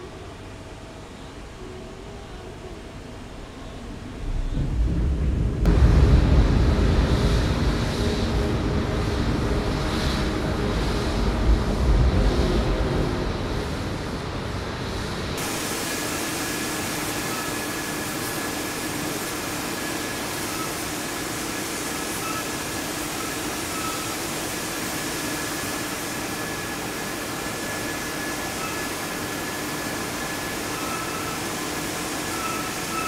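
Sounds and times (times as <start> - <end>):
machinery hiss and hum: 0.0 - 33.0
deep rumble: 4.2 - 15.4
steady high machine tone: 7.4 - 33.0.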